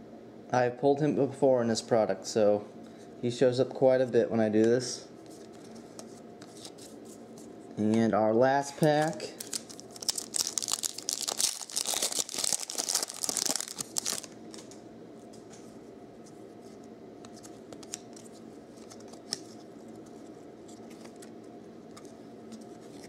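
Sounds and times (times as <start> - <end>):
foil wrapper crinkling and tearing: 9.0 - 14.7.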